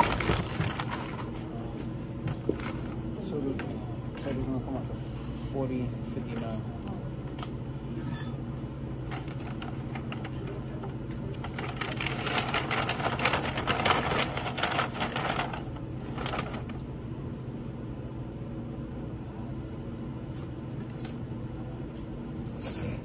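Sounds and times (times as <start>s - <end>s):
items clattering into bag: 0.0s - 1.3s
paper bag rustling: 0.0s - 3.0s, 9.0s - 16.8s
steady low hum: 0.0s - 23.0s.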